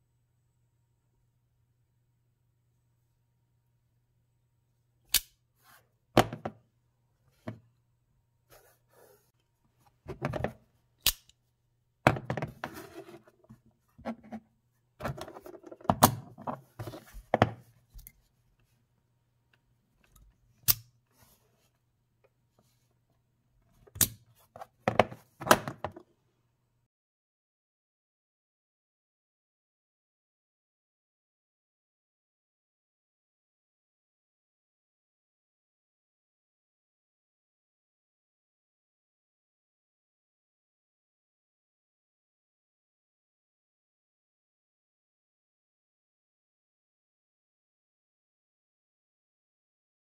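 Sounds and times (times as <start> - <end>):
spring knife blade snapping: 11.0 - 11.3.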